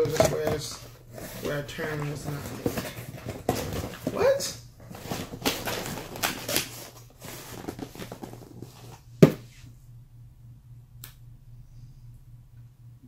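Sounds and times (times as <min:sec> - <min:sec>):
crackly rustling of handling: 0:00.0 - 0:09.1
low steady hum: 0:00.0 - 0:13.0.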